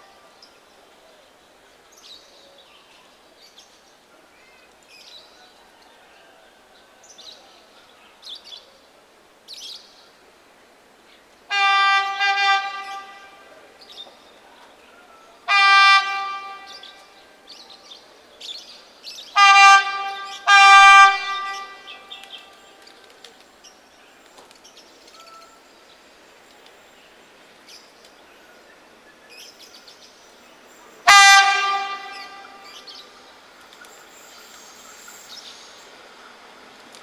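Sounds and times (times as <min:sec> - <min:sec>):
train horn blasts: 0:11.5 - 0:13.6, 0:15.5 - 0:17.2, 0:19.4 - 0:22.6, 0:31.0 - 0:32.9.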